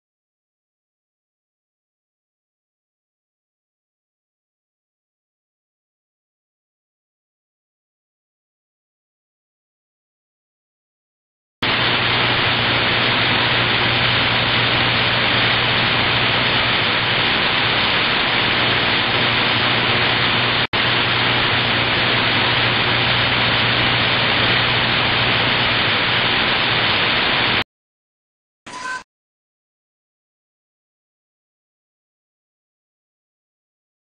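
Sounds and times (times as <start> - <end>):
static hiss: 11.6 - 27.6.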